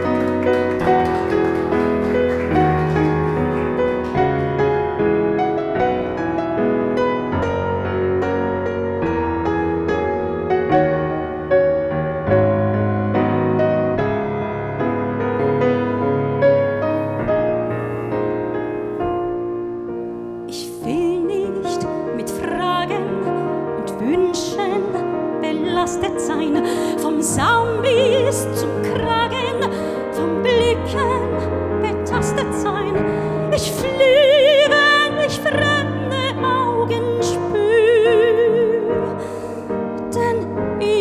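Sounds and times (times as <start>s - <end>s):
grand piano playing: 0.0s - 41.0s
soprano singing with vibrato: 20.6s - 39.1s.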